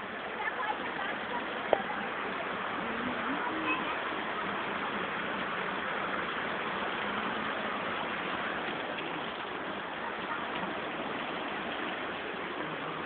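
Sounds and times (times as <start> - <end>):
mountain stream rushing over rocks: 0.0 - 13.0.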